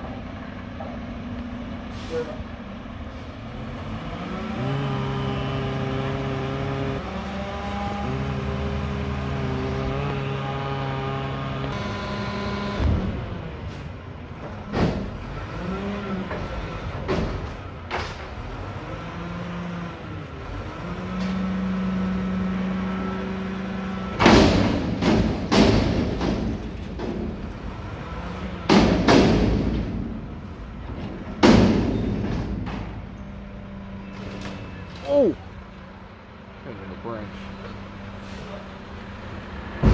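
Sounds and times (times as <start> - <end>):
garbage truck engine revving: 3.1 - 34.2
loud metal bangs: 24.2 - 27.4, 28.7 - 30.4, 31.1 - 33.0.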